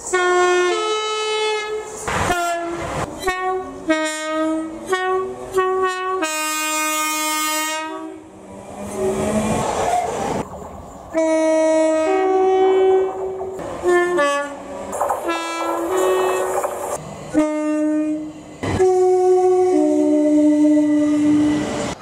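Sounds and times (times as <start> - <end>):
train two-tone horn blasts: 0.0 - 8.3, 11.1 - 16.6, 17.3 - 21.9
passing train rumble: 0.0 - 22.0.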